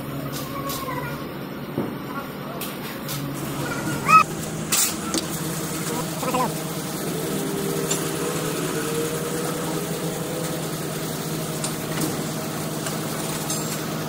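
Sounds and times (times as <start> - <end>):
truck engine idling: 3.2 - 14.0.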